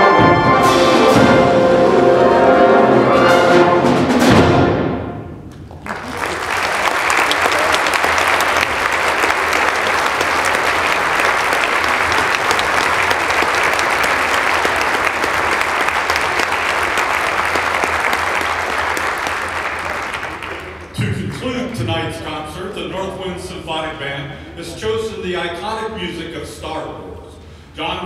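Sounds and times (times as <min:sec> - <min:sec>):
audience applauding: 0:05.6 - 0:21.4.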